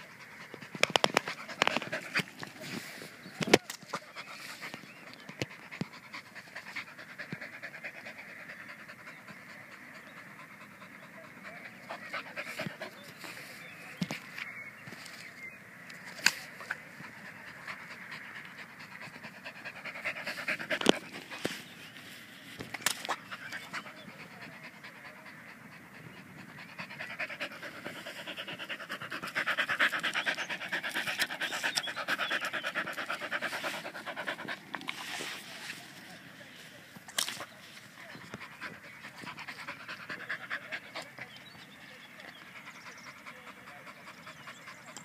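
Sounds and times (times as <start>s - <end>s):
dog panting: 0.0s - 3.2s, 3.9s - 14.0s, 16.5s - 22.1s, 23.1s - 36.3s, 37.8s - 45.0s.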